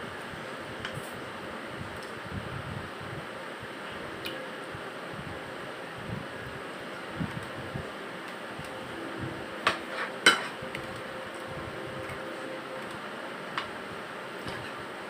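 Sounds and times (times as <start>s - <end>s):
steady background hum: 0.0s - 15.0s.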